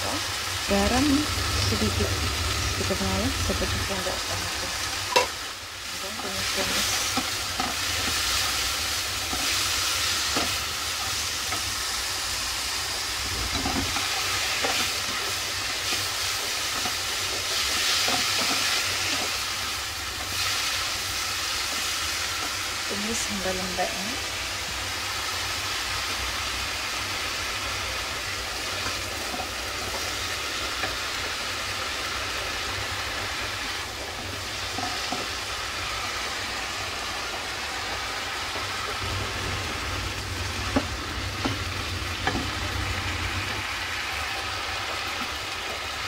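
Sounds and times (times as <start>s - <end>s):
mushrooms sizzling in a frying pan: 0.0s - 46.0s
low hum: 0.7s - 5.0s.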